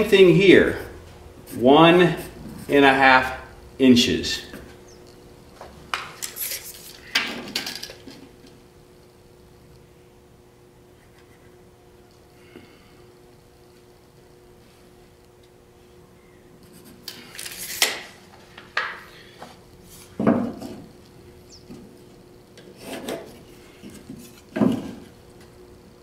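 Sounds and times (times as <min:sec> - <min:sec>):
tools scraping and knocking on drywall: 0:20.2 - 0:20.9, 0:22.6 - 0:25.1.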